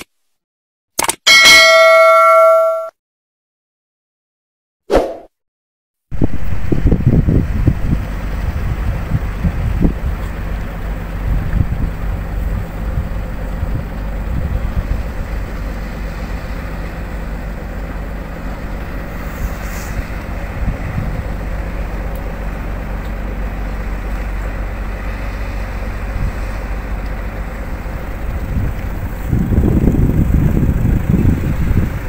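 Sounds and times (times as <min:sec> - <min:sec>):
wind buffeting microphone: 0:06.1 - 0:15.7, 0:18.9 - 0:21.7, 0:25.9 - 0:27.0, 0:27.8 - 0:32.0
boat engine rumbling: 0:06.2 - 0:32.0.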